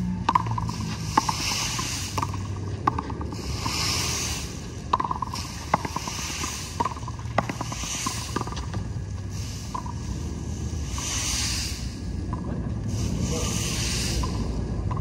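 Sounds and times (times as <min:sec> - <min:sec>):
hiss: 0:00.7 - 0:02.4, 0:03.3 - 0:04.6, 0:05.2 - 0:08.6, 0:09.2 - 0:12.2, 0:12.8 - 0:14.6.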